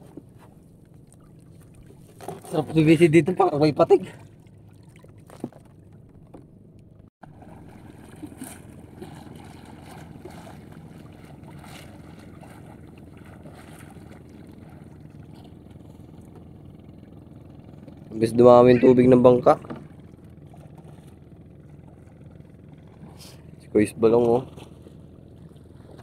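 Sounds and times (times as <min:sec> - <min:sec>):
low water background noise: 0:00.0 - 0:26.0
person swimming splashing: 0:07.2 - 0:16.2.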